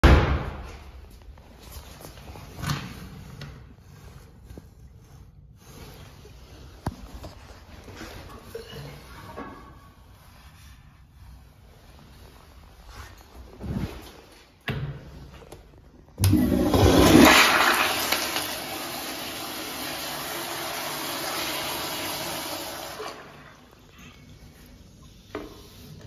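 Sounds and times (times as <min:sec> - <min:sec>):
toilet flushing: 0:16.2 - 0:23.8.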